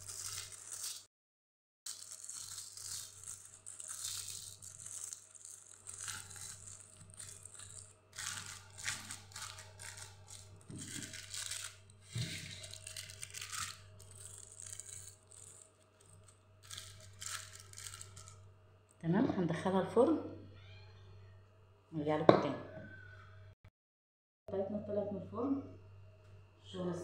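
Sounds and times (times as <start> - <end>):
aluminium foil crinkling: 0.0 - 1.1, 1.9 - 18.4.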